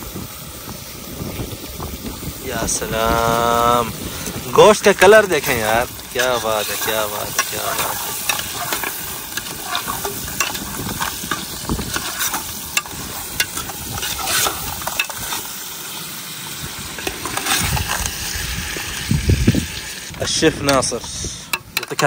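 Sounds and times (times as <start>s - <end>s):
meat sizzling in a pot: 0.0s - 22.0s
metal spoon scraping pot: 4.2s - 15.4s.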